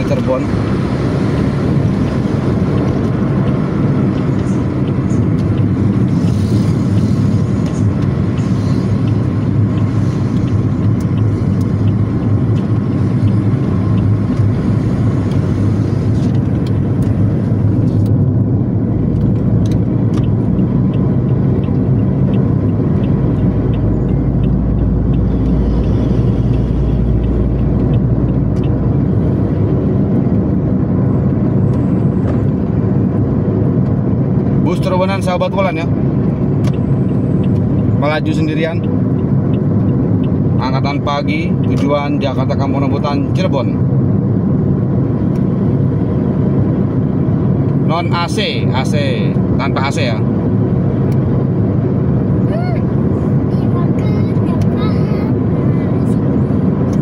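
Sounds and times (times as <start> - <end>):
deep low rumble: 0.0 - 41.7
car cabin road noise: 0.0 - 57.0.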